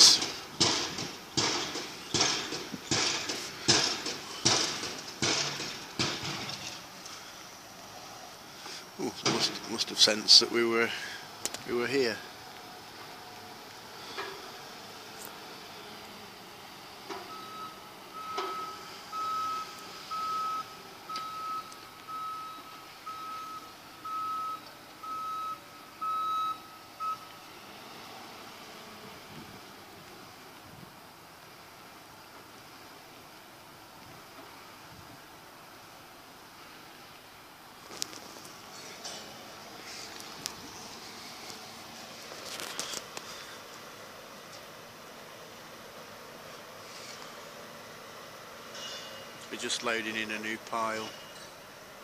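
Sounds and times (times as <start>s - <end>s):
pile-driving hammer banging: 0.0s - 6.8s, 9.2s - 9.8s
reversing alarm beeping: 17.2s - 27.4s.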